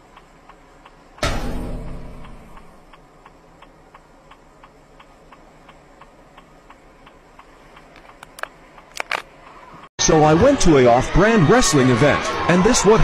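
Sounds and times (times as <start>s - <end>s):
turn signal relay ticking: 0.0s - 1.3s, 1.9s - 9.6s.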